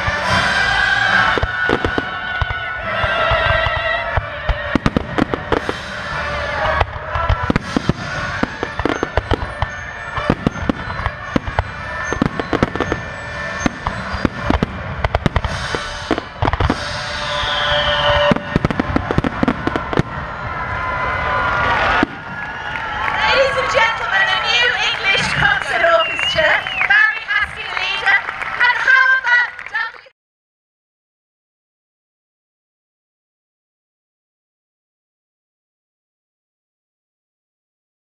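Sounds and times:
loud orchestral music: 0:00.0 - 0:26.0
firework bangs and crackles: 0:00.0 - 0:29.8.

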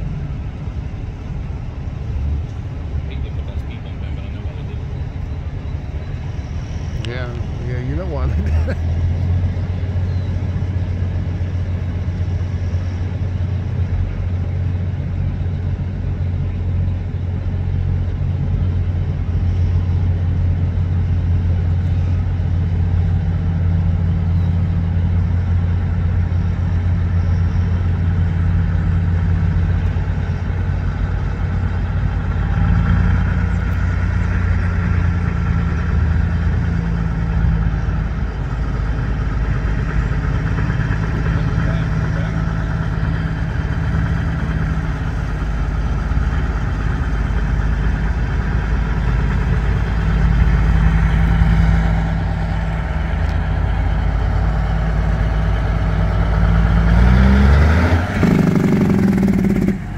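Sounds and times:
diesel truck engine droning: 0:00.0 - 0:59.9.

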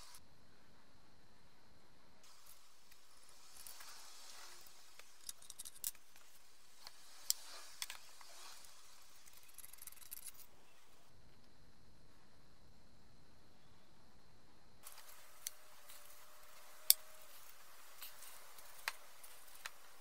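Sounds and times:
metal lamp parts clicking and scraping: 0:03.4 - 0:06.4, 0:07.2 - 0:10.5, 0:14.9 - 0:19.9.

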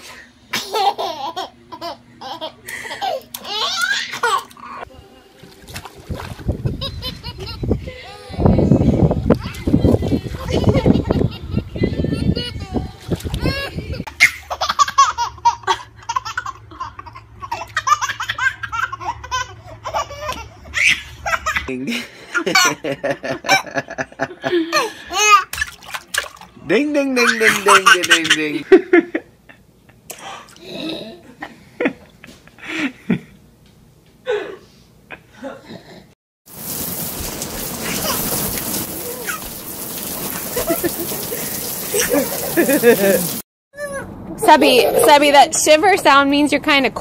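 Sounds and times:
baby giggling: 0:27.2 - 0:28.6
steady rain falling: 0:36.5 - 0:43.4.

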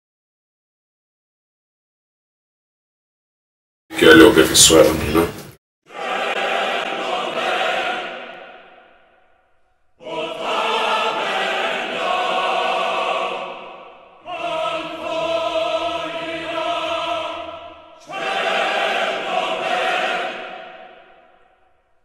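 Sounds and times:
sustained choir-like chords: 0:05.9 - 0:22.0.

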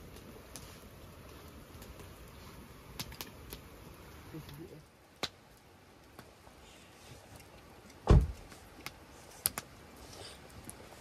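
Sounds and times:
campfire crackling: 0:00.0 - 0:11.0
fire pops: 0:00.0 - 0:11.0
dull deep thump: 0:08.0 - 0:08.4.

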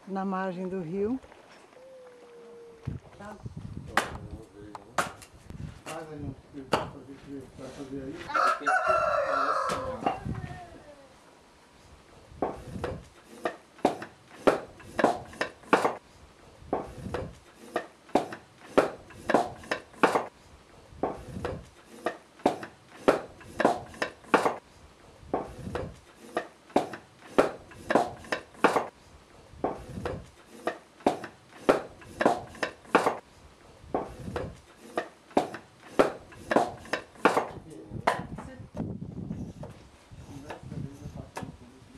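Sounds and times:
knife cutting wooden strips: 0:17.5 - 0:20.3, 0:21.1 - 0:24.6, 0:25.5 - 0:28.9, 0:29.7 - 0:33.2, 0:34.0 - 0:37.5.

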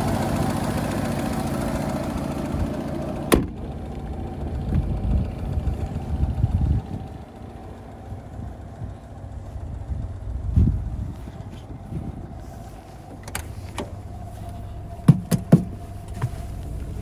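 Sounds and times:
car engine idling: 0:00.0 - 0:17.0
car bonnet slamming shut: 0:03.3 - 0:03.6, 0:15.1 - 0:15.8
low thuds: 0:13.0 - 0:17.0.

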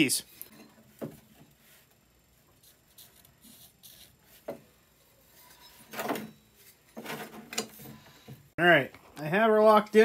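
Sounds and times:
marker scratching on metal: 0:02.6 - 0:04.6
scrape on angle iron: 0:05.2 - 0:06.8.

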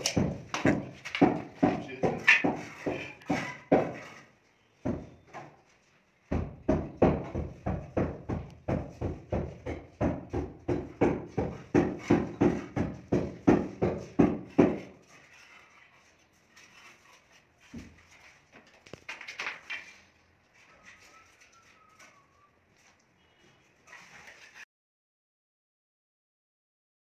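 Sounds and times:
sharp knocks on plasterboard ceiling: 0:00.0 - 0:04.2, 0:04.8 - 0:05.6, 0:06.2 - 0:15.1.

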